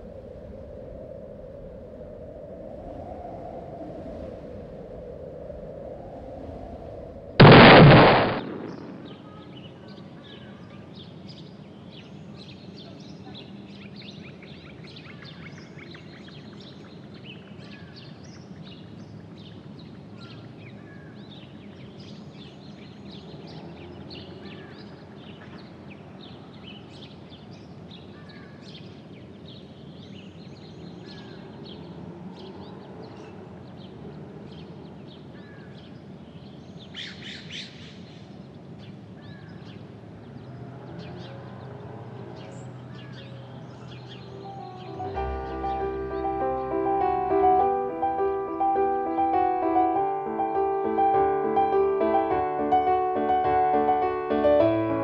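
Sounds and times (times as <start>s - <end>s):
tree trunk crashing onto car: 7.4s - 8.8s.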